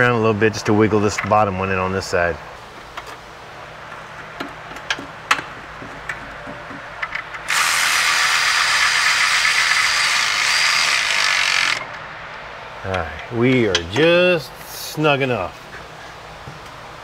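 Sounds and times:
electric ratchet running: 7.4s - 11.9s.

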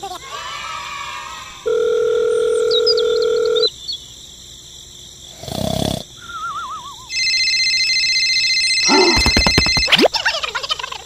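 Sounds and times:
wobbling falling whistle: 6.2s - 7.2s.

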